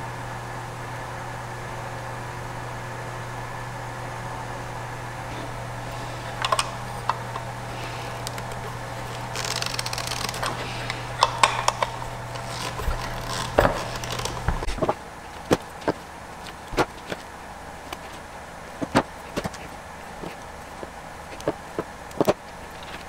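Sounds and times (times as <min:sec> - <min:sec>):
steady low hum: 0:00.0 - 0:23.0
screwdriver clicks and scrapes: 0:05.9 - 0:14.8.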